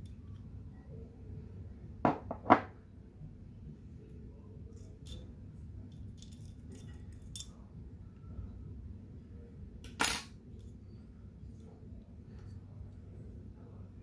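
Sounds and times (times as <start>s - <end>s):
metal parts clicking and scraping: 5.9s - 7.6s.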